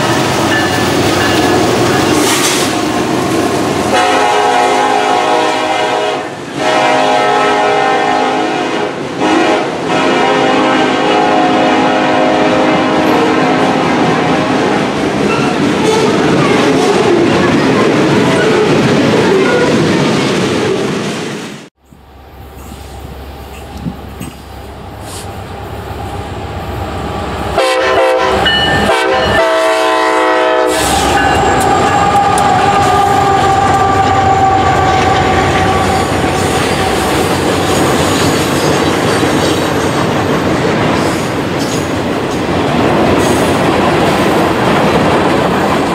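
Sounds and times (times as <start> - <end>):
locomotive horn blasts: 3.9 - 14.8, 27.6 - 37.3
train wheels clacking on rail joints: 30.8 - 45.9.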